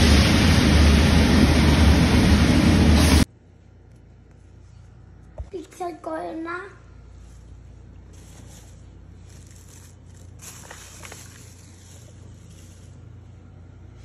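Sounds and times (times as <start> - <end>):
low steady hum: 0.0 - 14.0.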